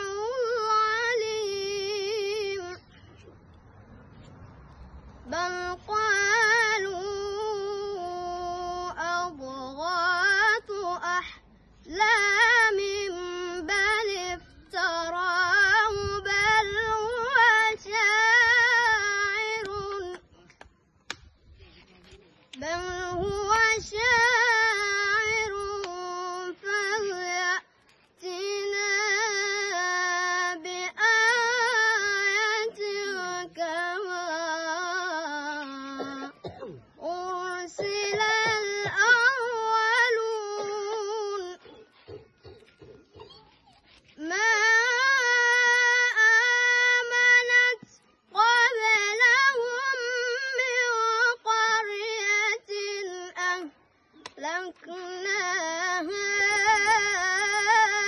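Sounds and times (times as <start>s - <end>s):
boy reciting melodically: 0.0s - 3.2s, 5.2s - 58.0s.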